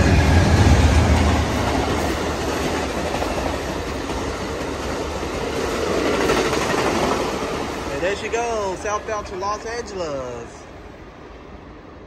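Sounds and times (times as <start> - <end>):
diesel locomotive rumble: 0.0 - 9.3
train cars rolling on rails: 0.0 - 12.0.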